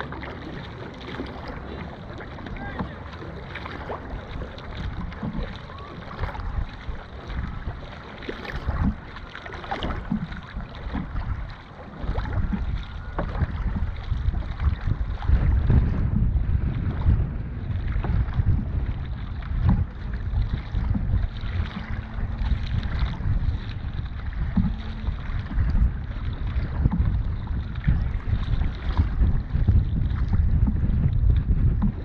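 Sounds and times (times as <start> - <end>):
water and paddle splashes: 0.0 - 32.0
wind rumbling on microphone: 0.0 - 32.0.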